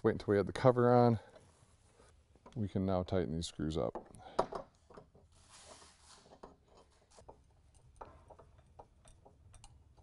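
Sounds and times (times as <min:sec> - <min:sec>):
faint clicks of screws tightening: 0:06.3 - 0:10.0.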